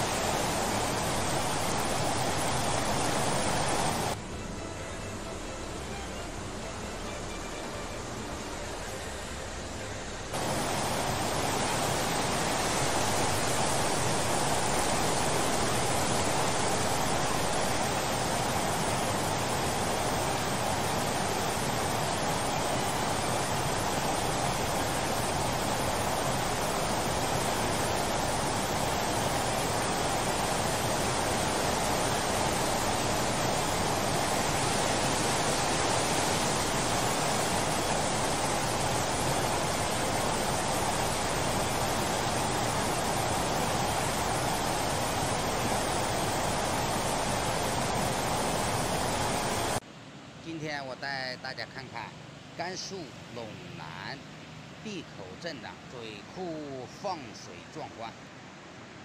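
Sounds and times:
water rushing from dam spillway: 0.0s - 4.2s, 10.3s - 49.8s, 50.5s - 59.0s.

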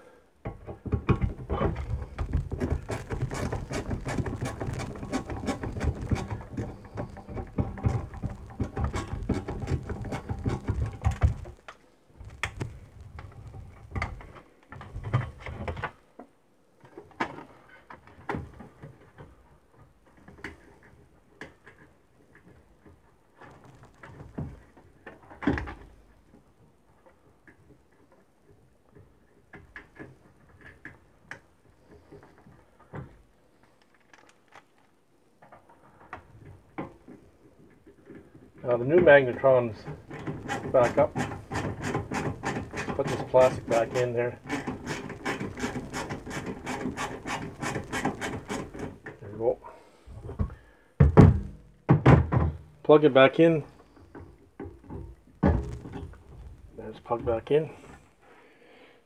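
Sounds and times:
rapid clicking and scraping: 0.4s - 16.0s, 28.9s - 49.6s.

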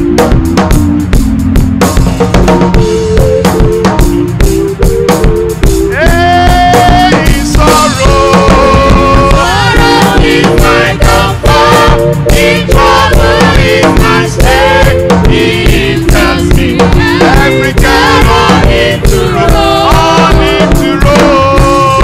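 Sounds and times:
drum kit: 0.0s - 22.0s
keyboard chords: 0.0s - 22.0s
choir singing: 5.9s - 22.0s
lead singer: 5.9s - 22.0s.

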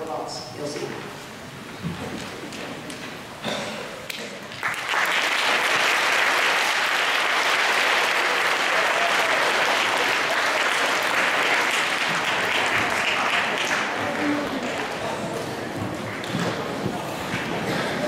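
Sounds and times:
audience applauding: 4.4s - 16.4s.

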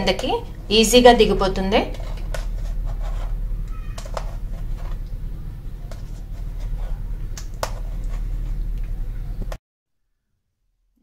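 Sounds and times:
steady low hum: 0.0s - 9.6s
pulp scraping on wire strainer: 1.8s - 9.3s.

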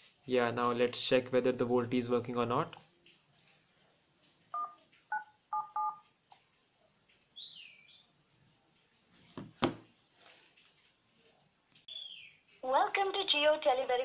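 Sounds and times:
keypad two-tone beeps: 4.6s - 6.0s.

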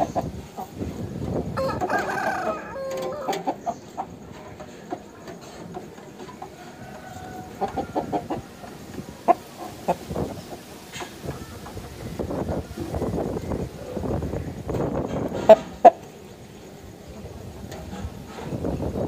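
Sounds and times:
rooster crowing: 1.6s - 3.4s, 6.6s - 8.7s.

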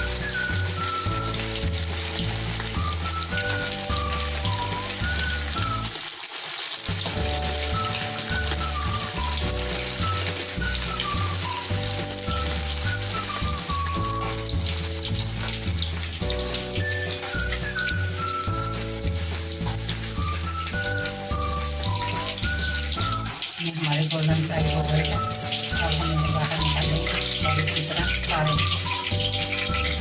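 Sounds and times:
background music with bass line: 0.0s - 5.9s, 6.9s - 23.4s
food deep-frying in oil: 0.0s - 30.0s.

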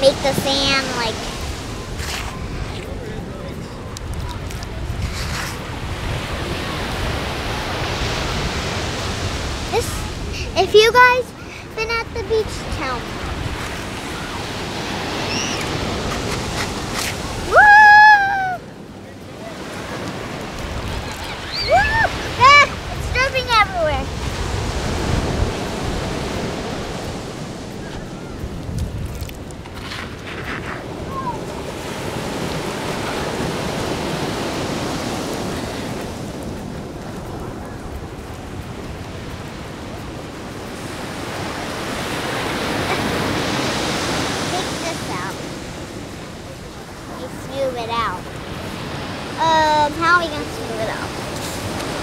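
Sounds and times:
surf washing on beach: 0.0s - 52.0s
loud high-pitched call: 15.2s - 15.8s.

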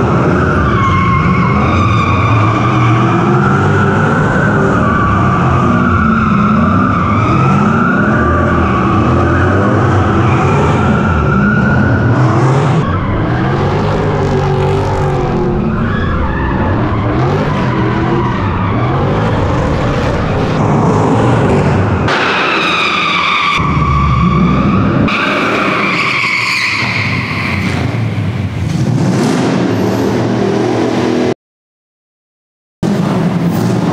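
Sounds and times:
car engine revving: 0.0s - 31.3s
tyres squealing: 22.4s - 28.1s.

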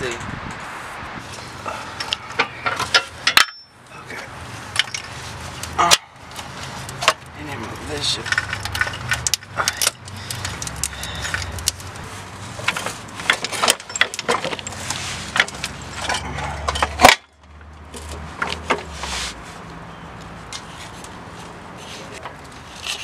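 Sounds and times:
metal tools clinking and knocking: 1.9s - 5.2s, 5.8s - 11.9s, 12.6s - 17.3s.

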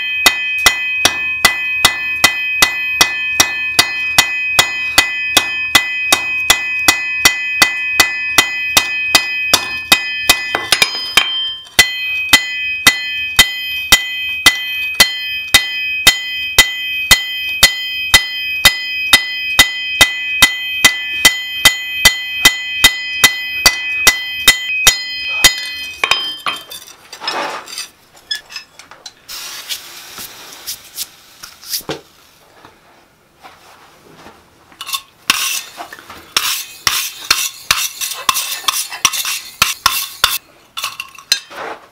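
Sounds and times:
hammer striking steel on anvil: 0.0s - 26.8s, 34.8s - 35.8s, 36.4s - 41.5s
anvil ringing: 0.0s - 26.9s, 36.4s - 41.4s.

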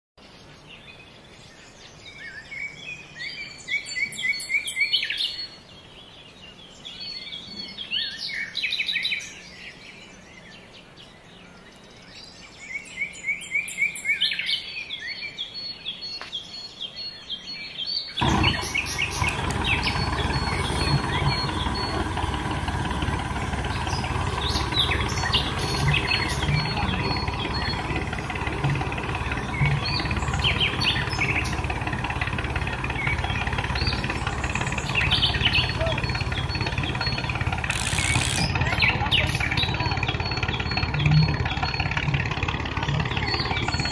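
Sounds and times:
birds chirping: 0.2s - 43.9s
electric motors whirring: 18.2s - 43.2s.

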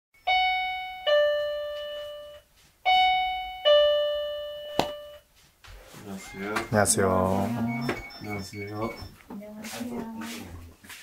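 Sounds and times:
two-note door chime: 0.2s - 5.2s, 6.2s - 9.2s.

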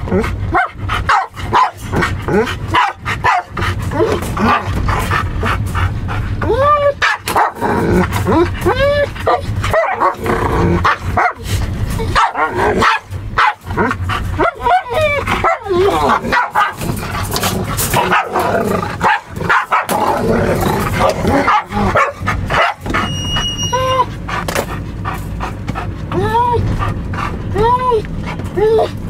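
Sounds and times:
dogs barking and growling: 0.0s - 29.0s
vehicle low rumble: 0.0s - 29.0s.

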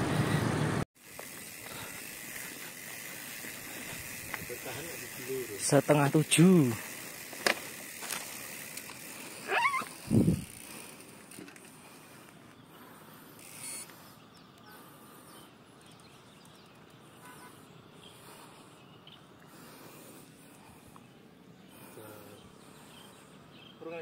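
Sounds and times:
small chirps of birds or insects: 1.0s - 24.0s.

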